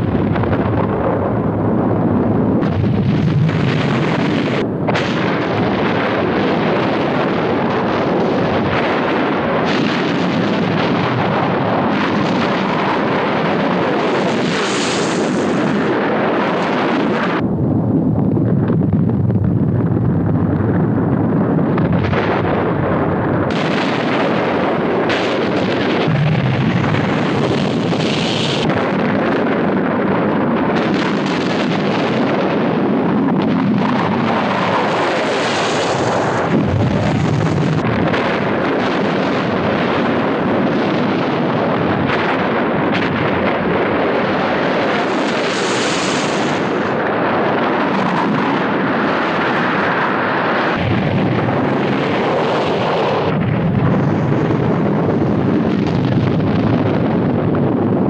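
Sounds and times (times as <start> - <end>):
explosions and blasts: 0.0 - 58.0.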